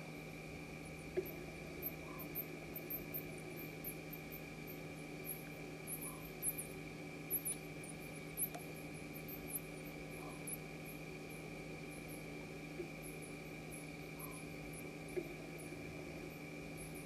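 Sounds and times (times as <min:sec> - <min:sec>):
steady electrical hum: 0:00.0 - 0:17.0
high-pitched insect chirps: 0:14.0 - 0:14.6.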